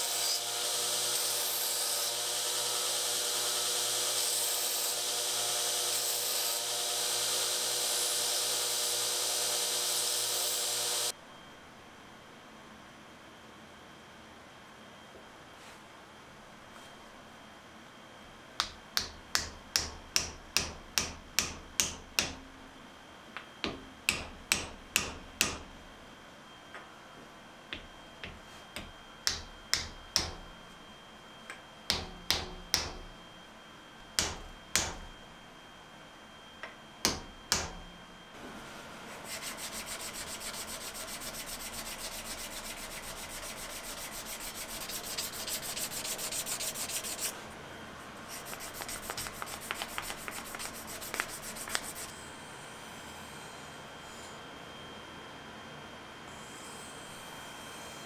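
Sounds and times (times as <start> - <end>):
hand-sanding wood with sandpaper: 39.1 - 47.4, 48.2 - 52.1.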